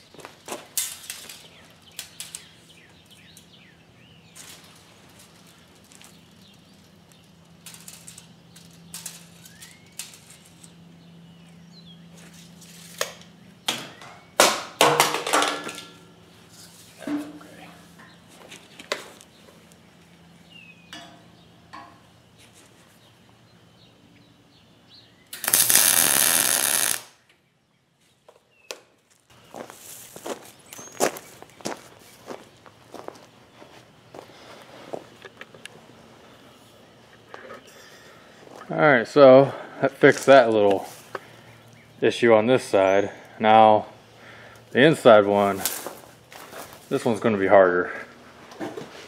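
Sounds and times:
birds chirping: 0.0 - 14.4, 16.1 - 25.5, 27.2 - 45.6
steady low hum: 0.0 - 28.2, 29.1 - 49.0
welding arc crackling hiss: 25.3 - 27.2.

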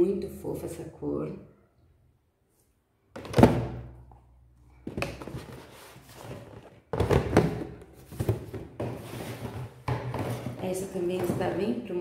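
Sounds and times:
cardboard boxes rustling and knocking: 4.8 - 11.8.

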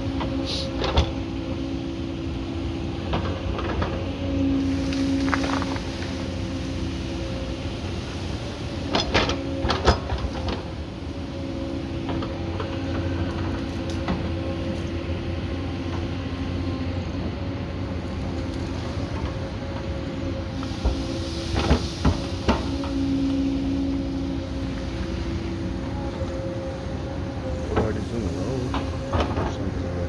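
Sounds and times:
excavator diesel engine running: 0.0 - 30.0
hydraulic drone: 19.0 - 30.0.

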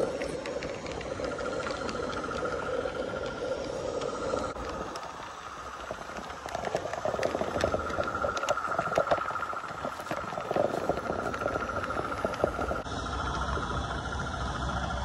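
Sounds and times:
leaves crackling: 0.0 - 12.9
steady high hum: 0.0 - 15.0.

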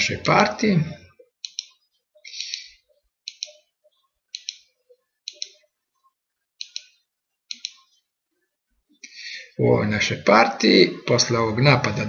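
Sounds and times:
computer mouse clicking: 1.4 - 1.8, 2.4 - 3.6, 4.3 - 5.6, 6.6 - 7.8.

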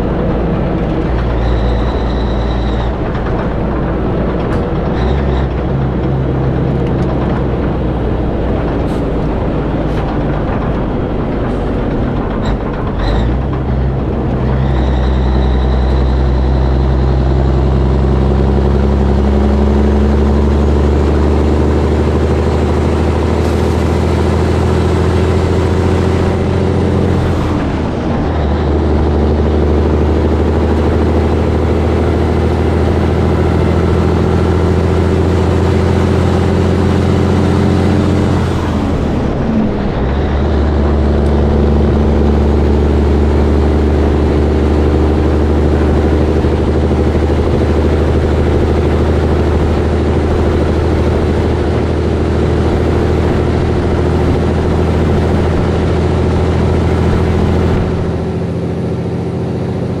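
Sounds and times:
diesel truck engine under load: 0.0 - 60.0.

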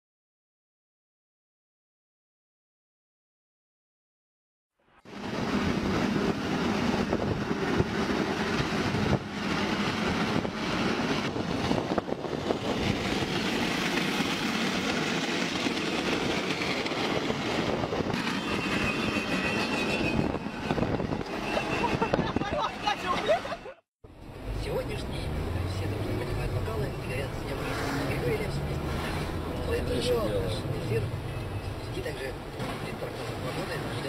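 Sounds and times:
metal scraping along road: 18.1 - 23.6, 24.9 - 34.0
thin high squeal: 18.2 - 22.3.

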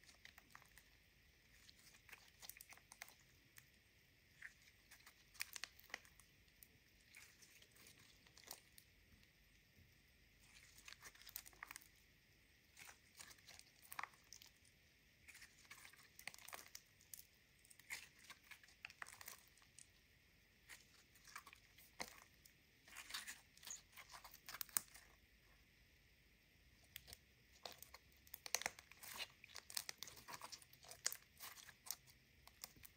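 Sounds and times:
slime sticky clicks and crackles: 26.9 - 32.9.

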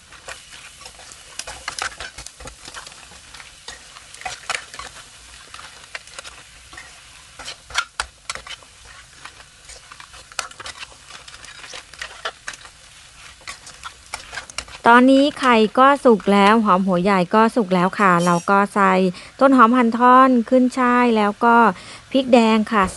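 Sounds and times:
metal spatula scraping wok: 0.0 - 16.5, 17.9 - 18.7
food sizzling: 0.0 - 22.9.

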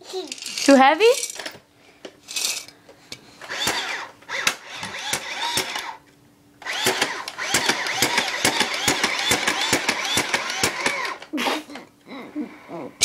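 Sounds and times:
toy mechanism clicking and whirring: 0.1 - 1.5, 3.4 - 6.0, 6.6 - 11.3.

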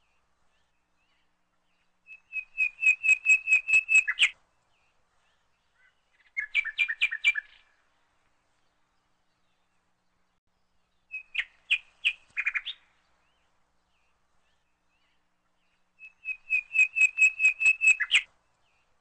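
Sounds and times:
songbird chirping: 0.0 - 19.0.

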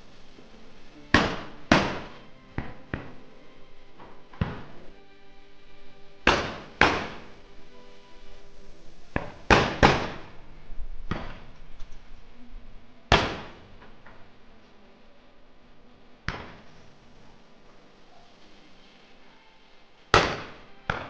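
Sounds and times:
distant gunshots: 1.1 - 3.2, 4.3 - 4.8, 6.2 - 7.4, 9.2 - 10.3, 11.1 - 11.5, 13.1 - 13.8, 20.1 - 21.0
shotgun shots with echo: 1.1 - 3.2, 6.2 - 7.4, 9.2 - 10.3, 11.1 - 11.5, 13.1 - 13.8, 20.1 - 21.0.

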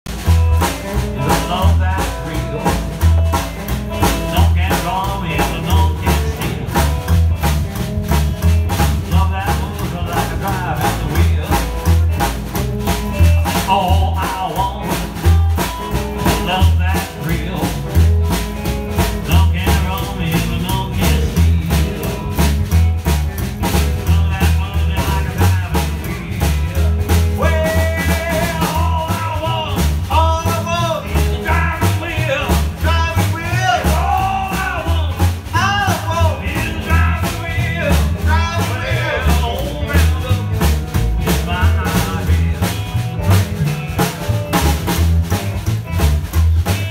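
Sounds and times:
upright bass: 0.0 - 46.9
electric guitar: 0.1 - 46.9
snare drum beat: 0.1 - 46.9
strummed acoustic guitar: 0.1 - 46.9
man singing: 0.6 - 7.2, 8.7 - 12.3, 13.1 - 18.4, 19.0 - 22.8, 23.6 - 44.2.

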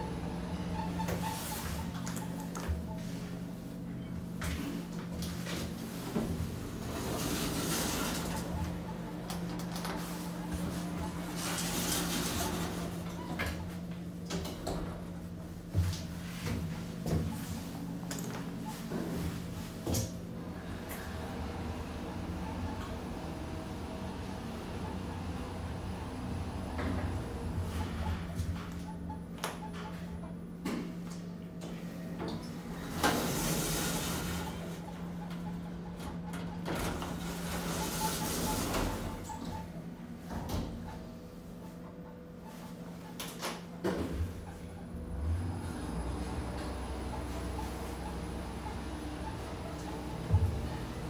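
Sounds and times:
elevator doors sliding closed: 5.7 - 13.7, 32.6 - 39.8
lift humming: 16.8 - 30.4, 43.7 - 51.0.

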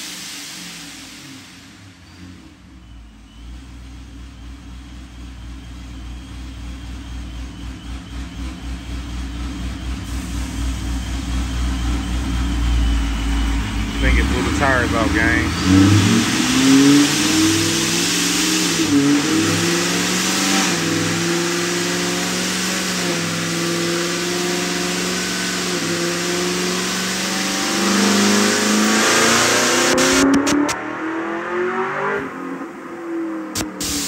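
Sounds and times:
car engine running under load: 0.0 - 31.2
steady supercharger hiss: 33.6 - 34.0.

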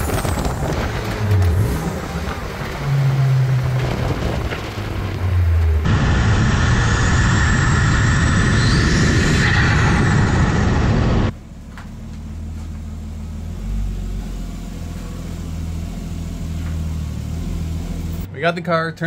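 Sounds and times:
turbo whine: 0.0 - 11.4
car engine running low: 0.0 - 18.3.

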